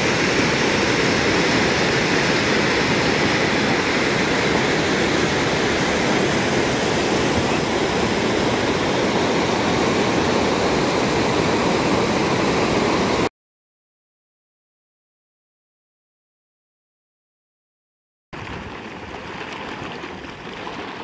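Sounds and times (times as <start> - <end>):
waterfall rushing: 0.0 - 13.3.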